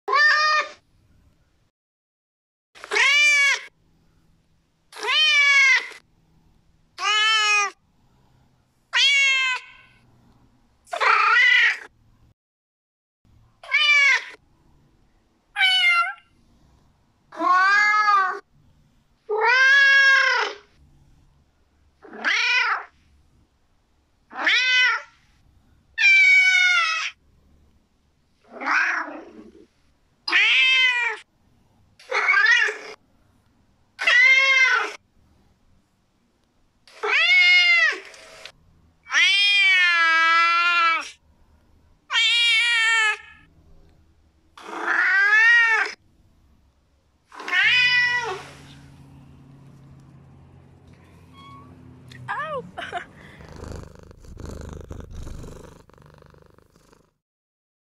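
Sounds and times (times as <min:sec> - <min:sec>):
cats meowing: 0:08.9 - 0:09.9, 0:47.4 - 0:48.6, 0:51.2 - 0:56.9.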